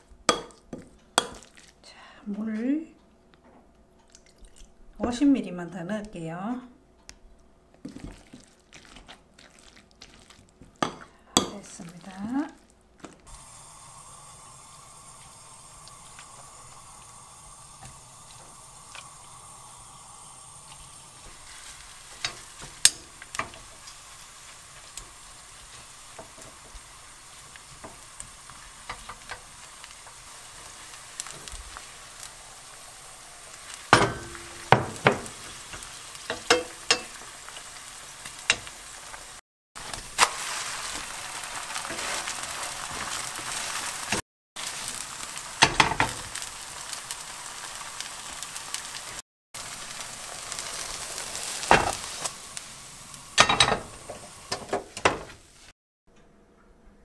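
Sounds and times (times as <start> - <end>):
batter sizzling in hot oil: 0.0 - 1.9, 7.8 - 55.8
spoon scraping a pan: 33.9 - 37.7.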